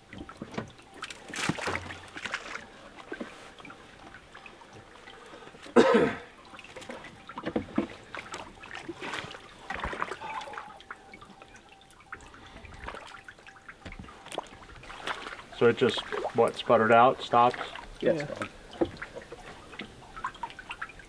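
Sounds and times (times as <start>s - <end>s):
water trickling: 0.0s - 21.0s
man coughing: 5.8s - 6.3s.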